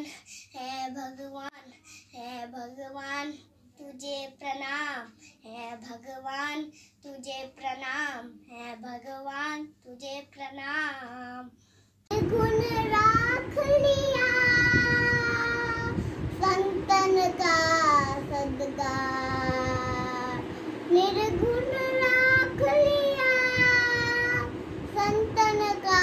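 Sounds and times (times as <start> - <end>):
steady background hiss: 0.0 - 26.0
boy singing: 12.1 - 26.0.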